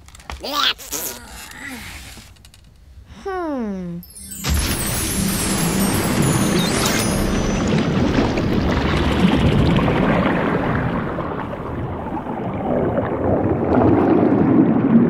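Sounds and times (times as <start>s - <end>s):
underwater rushing bubbling: 4.5s - 15.0s.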